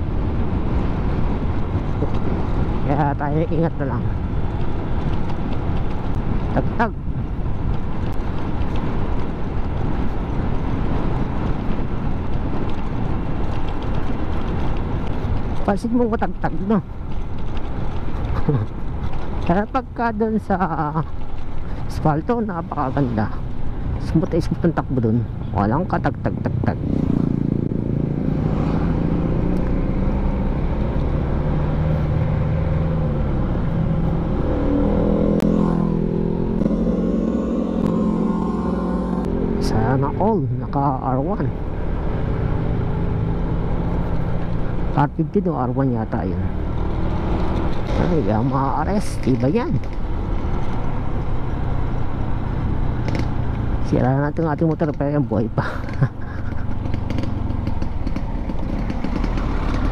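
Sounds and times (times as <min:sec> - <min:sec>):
wind rush: 0:00.0 - 0:15.7
road rumble: 0:00.0 - 0:59.9
motorcycle passing: 0:22.4 - 0:59.9
scooter engine running: 0:55.8 - 0:59.9.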